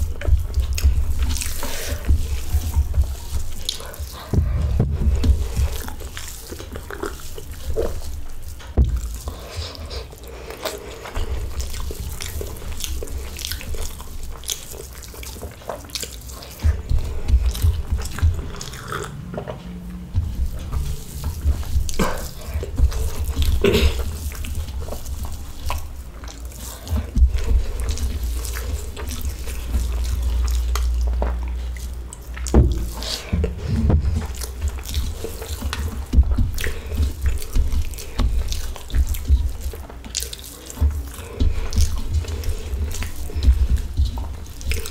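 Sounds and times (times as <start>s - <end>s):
person chewing with wet clicks: 0.0s - 44.9s
person drinking water: 0.0s - 44.9s.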